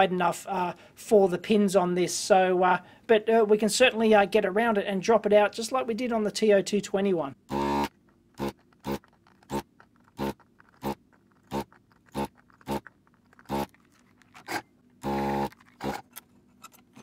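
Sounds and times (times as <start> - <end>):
desoldering vacuum pump buzzing: 7.5 - 12.8, 13.5 - 13.7, 14.5 - 16.0.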